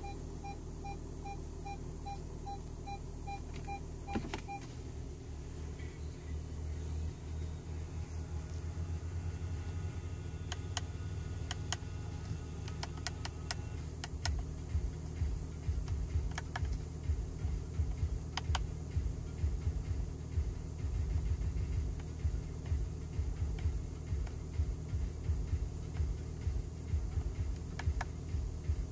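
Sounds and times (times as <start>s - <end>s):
diesel engine idling: 0.0s - 28.9s
steering wheel button clicks: 12.6s - 14.5s, 15.8s - 16.8s, 18.3s - 18.7s.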